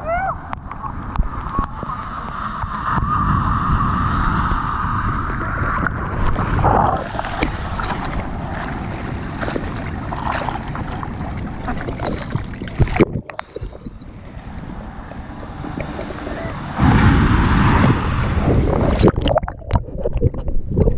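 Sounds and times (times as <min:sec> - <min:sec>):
wind buffeting microphone: 0:00.0 - 0:20.9
loud splash: 0:03.0 - 0:13.9, 0:15.4 - 0:20.0
seawater sloshing and splashing: 0:05.3 - 0:20.7.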